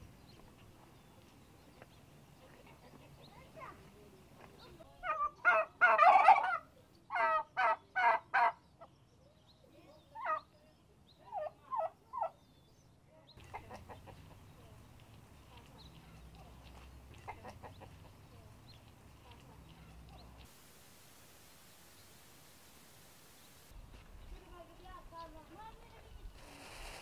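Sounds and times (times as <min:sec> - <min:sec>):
turkeys gobbling: 0:05.0 - 0:08.6, 0:10.2 - 0:10.4, 0:13.4 - 0:14.5, 0:16.6 - 0:18.9.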